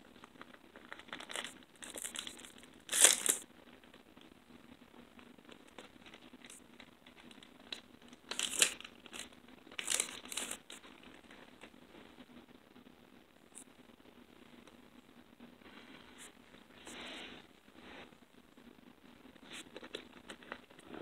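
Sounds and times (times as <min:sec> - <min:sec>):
foil wrapper crinkling: 0:00.2 - 0:04.0, 0:05.5 - 0:11.7, 0:19.5 - 0:20.8.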